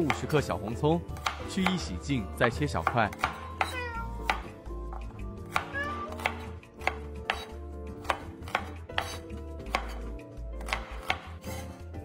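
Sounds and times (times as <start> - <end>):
cleaver chopping on cutting board: 1.2 - 1.9, 2.8 - 11.7.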